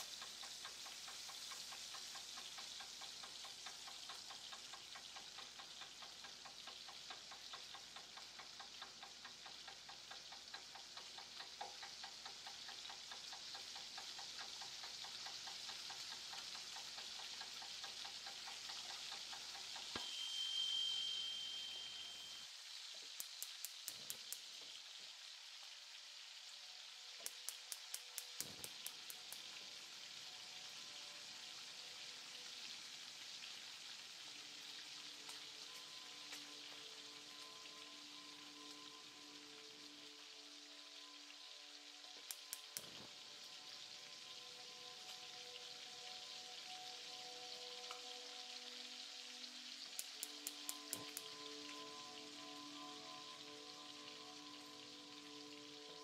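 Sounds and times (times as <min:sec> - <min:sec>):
light ticks: 0:00.0 - 0:20.2, 0:22.0 - 0:24.9, 0:27.1 - 0:30.9, 0:34.6 - 0:39.0, 0:42.0 - 0:43.5, 0:47.8 - 0:48.1, 0:49.8 - 0:53.5
food sizzling in a pan: 0:00.0 - 0:56.0
high steady tone: 0:19.9 - 0:22.5.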